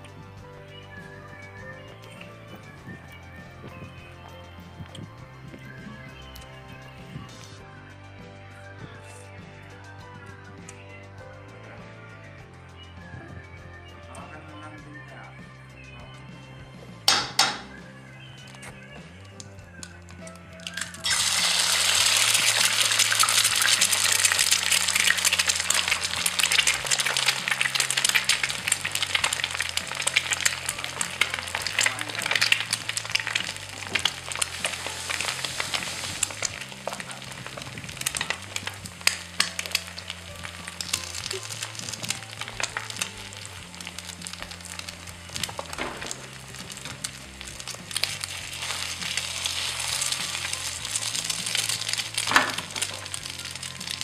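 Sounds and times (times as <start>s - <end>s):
background music: 0.0s - 54.0s
dense crackling hiss: 20.6s - 54.0s.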